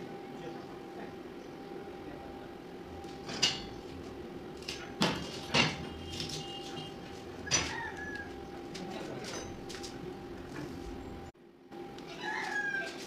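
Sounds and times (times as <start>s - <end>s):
steady hum: 0.0s - 12.2s.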